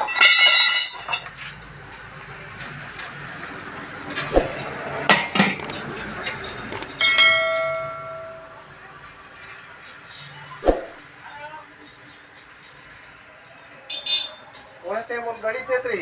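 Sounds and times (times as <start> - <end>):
steel wheel rim clanging: 0.0 - 1.6, 4.1 - 8.6.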